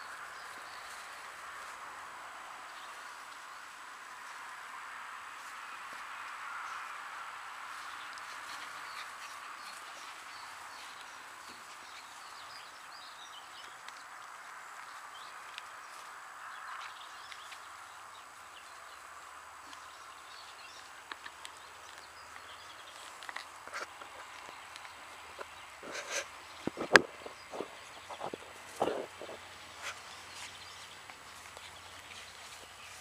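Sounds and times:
steady outdoor hiss: 0.0 - 33.0
puppies chewing on boot: 7.7 - 12.7, 19.6 - 33.0
small clicks and scuffs: 7.7 - 12.8, 13.6 - 17.8, 20.7 - 33.0.

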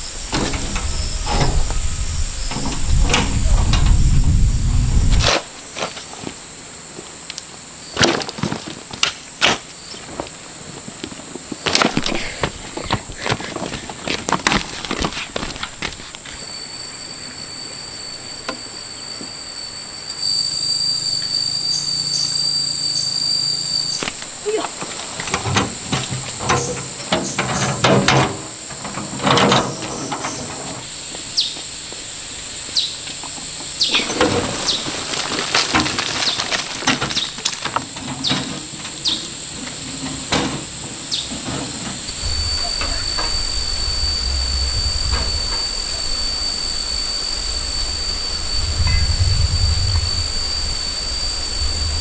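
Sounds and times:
low rumble: 0.0 - 5.3, 42.0 - 52.0
steady high whine: 0.0 - 8.0, 8.7 - 52.0
insect chirring: 0.0 - 13.2, 13.8 - 52.0.

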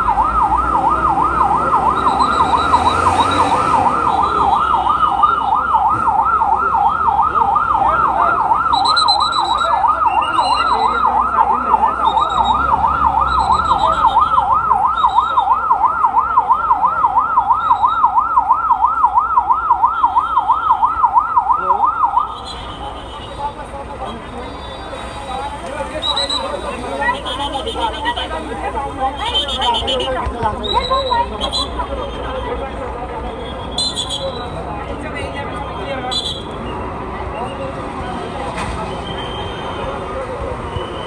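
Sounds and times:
fire engine siren warbling: 0.0 - 23.7.

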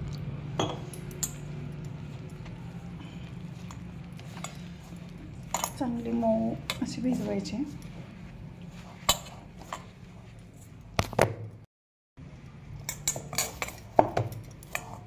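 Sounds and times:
soft rubbing of dough: 1.9 - 10.9.

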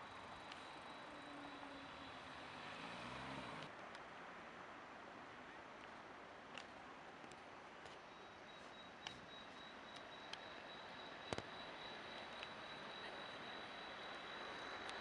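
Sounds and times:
thin high whine: 0.0 - 3.6, 8.1 - 15.0
faint street noise: 0.0 - 15.0.

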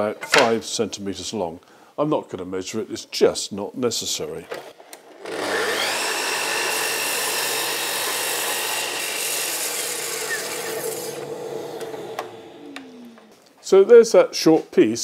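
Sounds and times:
saw blade cutting wood: 5.3 - 12.9
mitre saw motor whine: 5.3 - 13.3.

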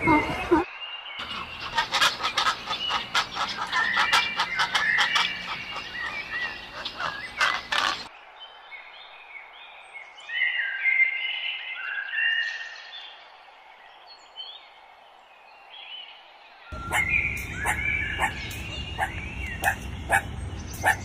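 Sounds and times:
birds chirping: 0.0 - 10.8, 14.0 - 21.0.

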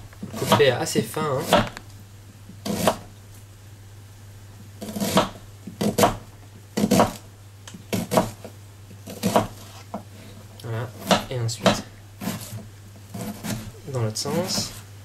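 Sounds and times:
knife slicing onion on board: 0.2 - 1.8, 2.6 - 3.1, 4.8 - 7.2, 7.9 - 10.2, 10.9 - 14.8.

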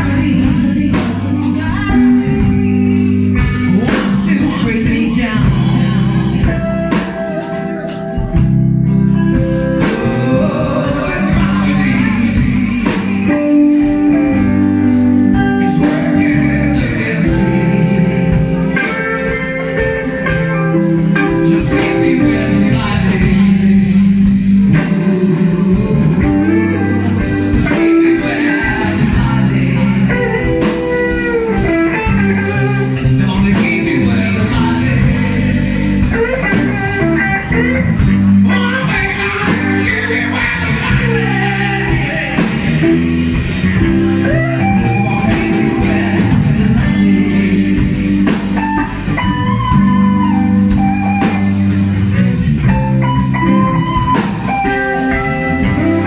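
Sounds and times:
woman singing: 0.0 - 7.1, 9.8 - 14.0, 24.8 - 31.2
bass guitar: 0.0 - 56.0
drum kit: 0.0 - 56.0
electric guitars: 0.0 - 56.0.

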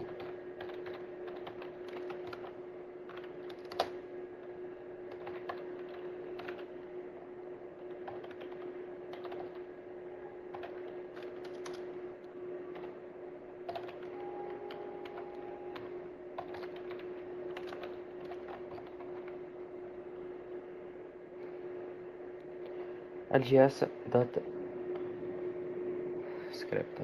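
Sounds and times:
keyboard typing: 0.0 - 6.8, 7.8 - 9.7, 10.5 - 12.0, 12.7 - 13.0, 13.6 - 19.4
steady low hum: 0.0 - 27.0.

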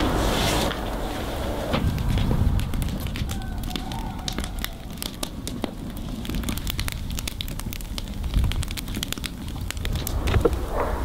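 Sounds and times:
campfire crackling and popping: 0.0 - 11.0.

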